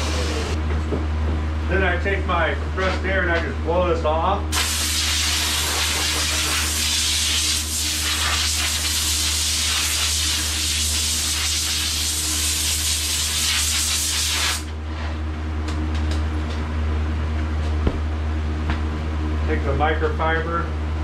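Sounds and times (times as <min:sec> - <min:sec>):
steady low hum: 0:00.0 - 0:21.0
air blow gun hissing: 0:04.5 - 0:14.7.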